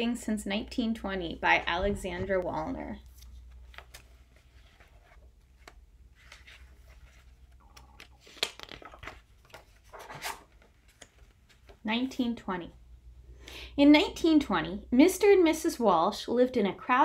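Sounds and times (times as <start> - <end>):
book pages turning: 2.2 - 11.8.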